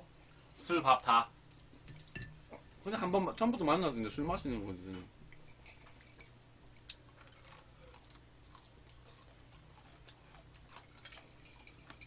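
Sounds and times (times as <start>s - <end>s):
quiet chewing: 5.3s - 12.0s.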